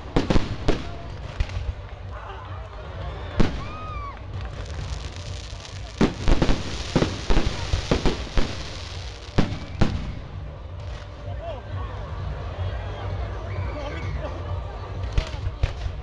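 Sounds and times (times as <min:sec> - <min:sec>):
fireworks bangs: 0:00.0 - 0:01.8, 0:03.4 - 0:11.0
crackling hiss: 0:03.5 - 0:10.3.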